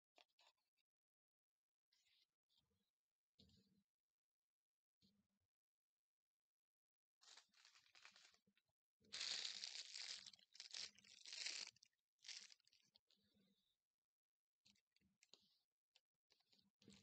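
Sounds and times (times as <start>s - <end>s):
paper towel crinkling: 7.2s - 8.4s, 9.1s - 12.8s.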